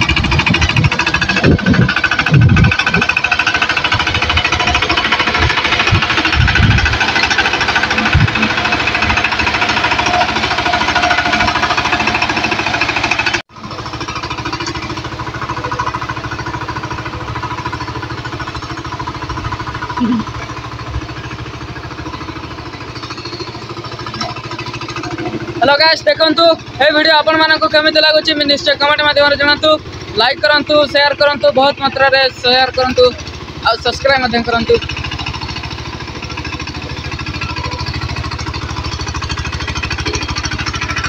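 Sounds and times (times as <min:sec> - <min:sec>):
diesel tiller engine running: 0:00.0 - 0:41.0
wheels churning muddy water: 0:00.0 - 0:41.0.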